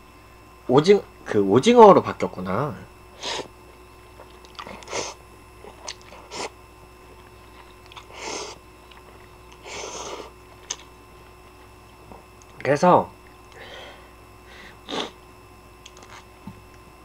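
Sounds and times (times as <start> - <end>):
chewing: 4.1 - 5.0, 5.6 - 6.5, 7.2 - 8.2, 8.8 - 9.6, 10.4 - 10.9, 15.8 - 16.3
wet mouth clicks: 4.2 - 5.0, 5.8 - 6.3, 10.6 - 10.9, 15.8 - 16.3.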